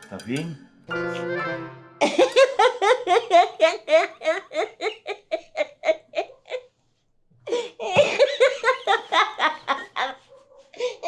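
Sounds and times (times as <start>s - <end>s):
woman laughing hard: 2.0s - 6.7s, 7.5s - 10.3s.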